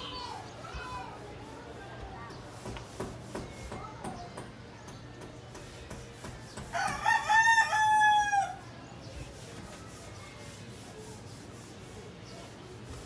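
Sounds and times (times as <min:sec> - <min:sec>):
rooster crowing: 0:06.8 - 0:08.6.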